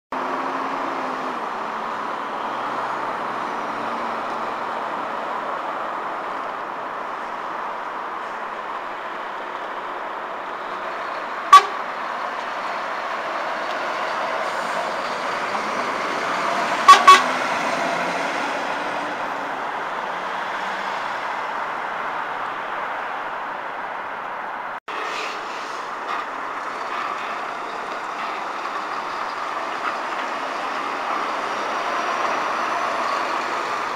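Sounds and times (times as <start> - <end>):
lorry diesel engines running: 0.1 - 33.9
vehicle horn toots: 11.5 - 11.8, 16.8 - 17.5.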